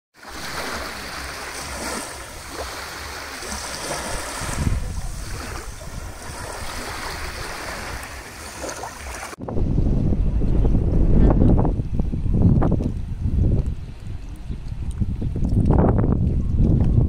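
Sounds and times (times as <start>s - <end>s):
sea water lapping: 0.2s - 9.4s
wind rumbling on microphone: 0.2s - 17.0s.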